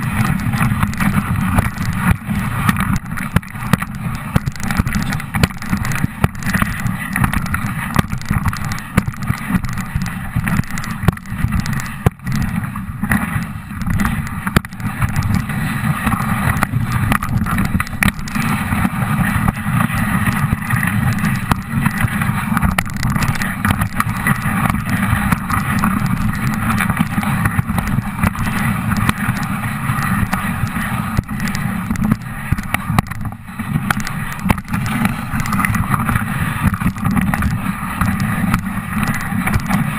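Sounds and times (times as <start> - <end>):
sled runners hissing on snow: 14.9 - 16.8, 17.5 - 22.6.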